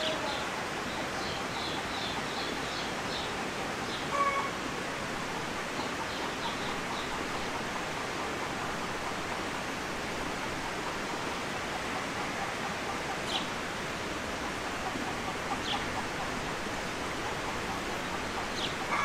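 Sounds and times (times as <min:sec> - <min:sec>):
steady rushing hiss: 0:00.0 - 0:19.0
chickens clucking: 0:01.2 - 0:04.6, 0:05.4 - 0:09.5, 0:10.7 - 0:13.7, 0:14.4 - 0:19.0.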